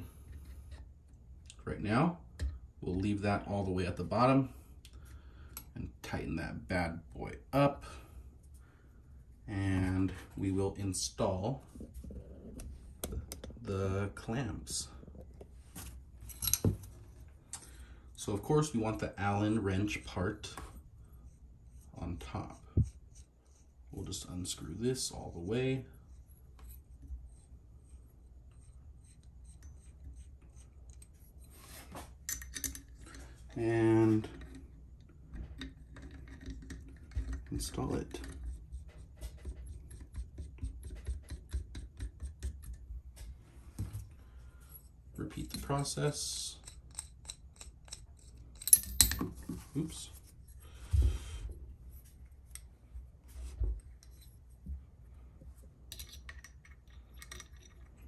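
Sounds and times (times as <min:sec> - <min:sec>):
light metal clicks and rubbing: 0:53.4 - 0:54.6, 0:55.9 - 0:58.0.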